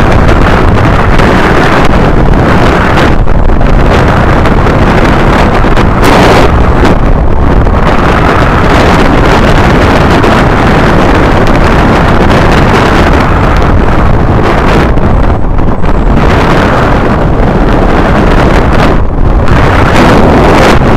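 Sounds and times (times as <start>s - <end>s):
wind rushing over microphone: 0.0s - 20.9s.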